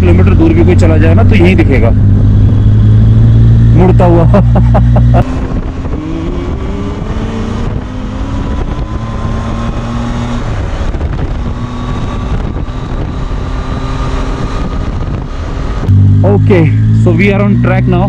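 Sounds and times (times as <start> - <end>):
motorcycle engine accelerating: 0.0 - 18.0
wind rush on microphone: 0.0 - 18.0.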